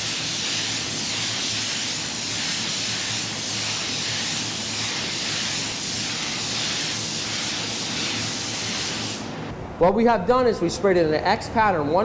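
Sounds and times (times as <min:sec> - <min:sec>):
spray gun hissing: 0:00.0 - 0:09.4.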